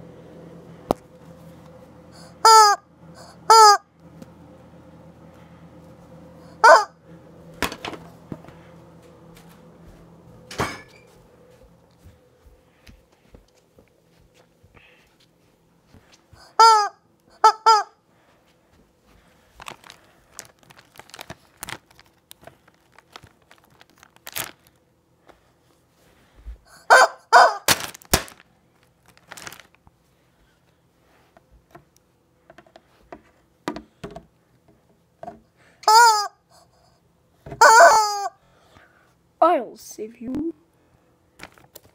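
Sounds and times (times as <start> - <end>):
rubber chicken toy squawks: 2.4 - 3.9, 6.6 - 6.9, 16.4 - 18.0, 26.8 - 27.8, 35.8 - 36.7, 37.6 - 38.4
handling rustles and clicks: 19.5 - 24.8, 41.4 - 41.9.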